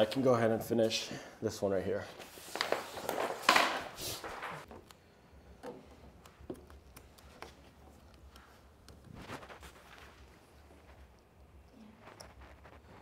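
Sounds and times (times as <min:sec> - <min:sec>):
vinyl film rustling and crinkling: 0:02.2 - 0:04.9, 0:06.1 - 0:13.0
squeegee clicks and taps: 0:05.6 - 0:09.0.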